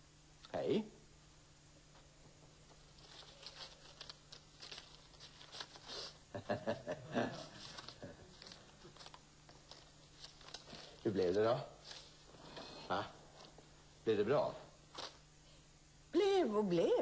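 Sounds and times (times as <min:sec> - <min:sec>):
newspaper paper rustling: 0:02.7 - 0:06.2, 0:07.3 - 0:12.8, 0:14.8 - 0:15.2.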